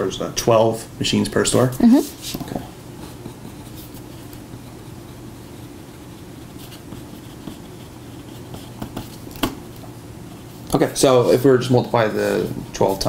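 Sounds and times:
low room hum: 0.0 - 13.0
pen scratching on paper: 3.0 - 9.3.

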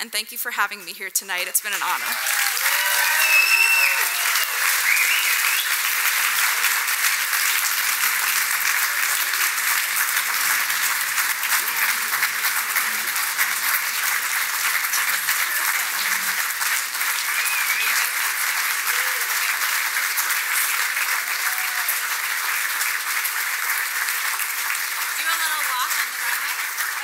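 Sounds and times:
audience applauding: 1.5 - 27.0
whoops and cheers: 2.0 - 5.8, 17.2 - 18.2, 18.8 - 19.5, 21.1 - 22.2.

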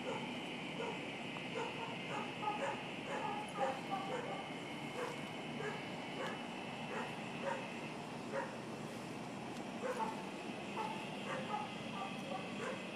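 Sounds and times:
dog barking: 0.0 - 1.0, 1.6 - 7.7, 8.3 - 8.6, 9.8 - 10.2, 10.8 - 12.9.

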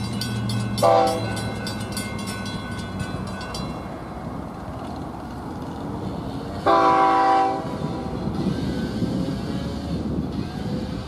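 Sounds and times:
train horn chord: 0.8 - 1.4, 6.6 - 8.2.

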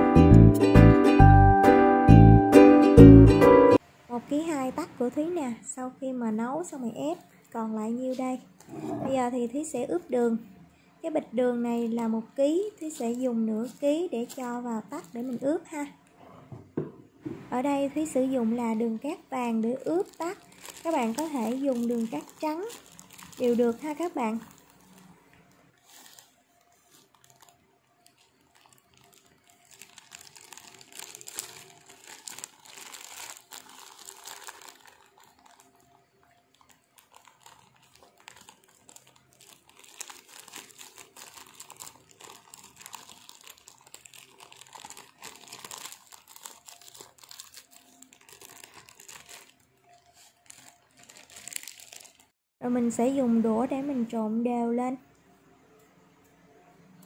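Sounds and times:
plastic bag crinkling: 11.8 - 16.0, 17.6 - 52.4
sugar grains pouring: 20.2 - 24.9, 25.8 - 52.3.

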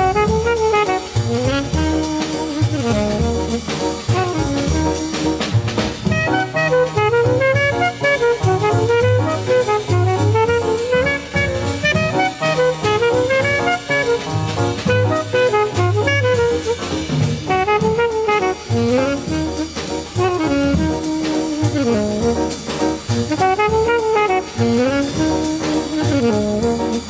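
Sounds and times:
bass and drums: 0.0 - 27.0
jazz saxophone melody: 0.0 - 27.0.

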